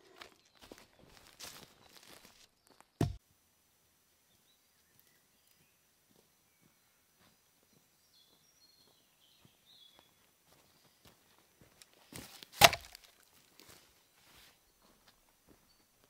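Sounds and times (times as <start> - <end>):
faint bird chirps: 4.3 - 11.3.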